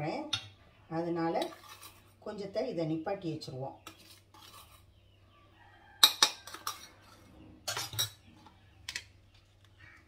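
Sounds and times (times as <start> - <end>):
steel spoon clinking on bowls: 6.0 - 7.0, 7.7 - 8.2.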